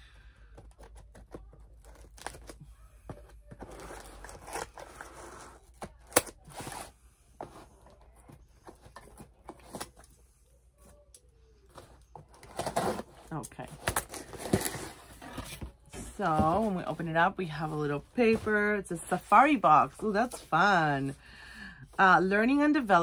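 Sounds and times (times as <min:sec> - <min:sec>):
cardboard tearing and rustling: 0:00.8 - 0:02.6, 0:03.4 - 0:07.7, 0:12.3 - 0:15.8.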